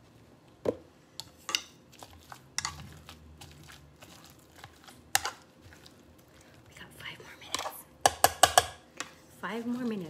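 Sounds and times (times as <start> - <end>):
potato masher clinking on saucepan: 8.0 - 8.8.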